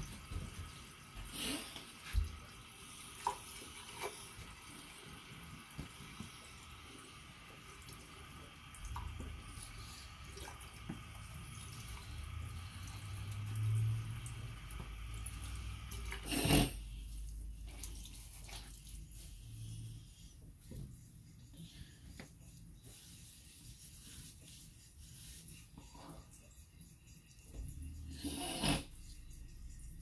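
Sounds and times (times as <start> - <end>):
tap water running into basin: 0.0 - 19.2.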